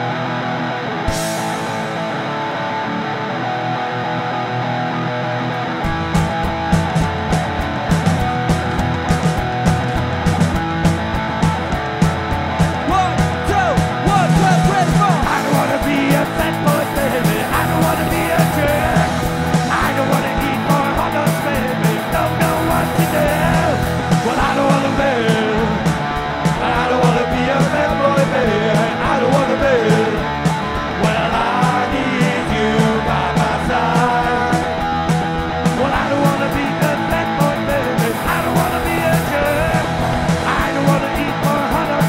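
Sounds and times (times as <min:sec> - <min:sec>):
bass guitar: 0:00.0 - 0:42.0
distorted electric guitar: 0:00.0 - 0:42.0
drum kit beat: 0:05.9 - 0:42.0.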